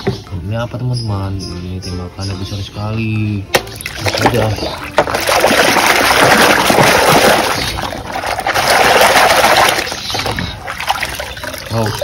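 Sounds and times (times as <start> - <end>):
soapy water sloshing in a basin: 3.8 - 12.0.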